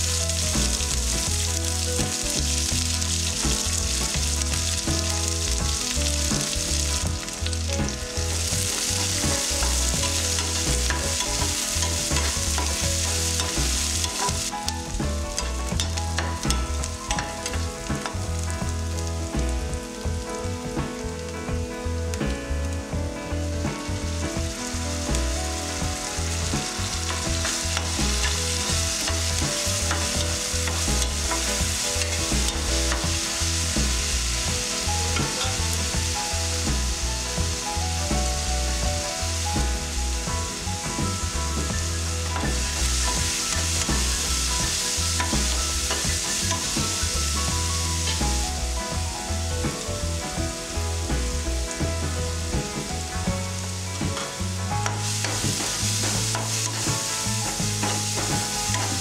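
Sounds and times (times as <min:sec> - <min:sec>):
onions sizzling in oil: 0:00.0 - 0:21.3, 0:23.8 - 0:59.0.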